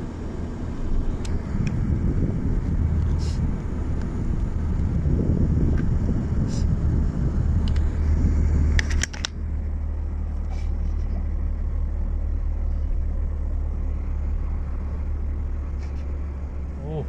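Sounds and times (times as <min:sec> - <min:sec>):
car engine and road rumble: 0:00.0 - 0:17.0
sharp clicks: 0:08.7 - 0:09.4.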